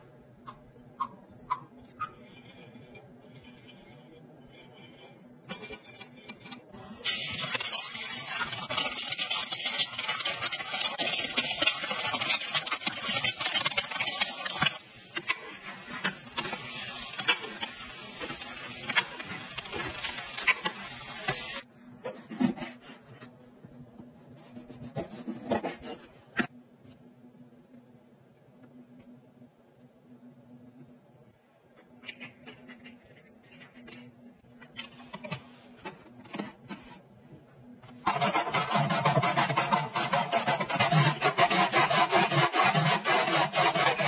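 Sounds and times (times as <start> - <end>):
eggs sizzling in hot oil: 6.8 - 21.7.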